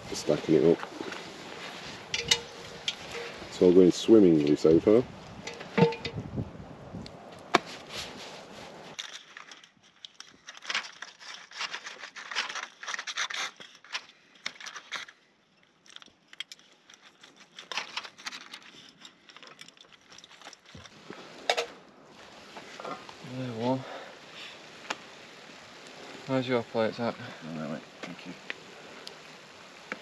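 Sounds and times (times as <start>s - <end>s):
aluminium foil crinkling: 8.4s - 21.0s.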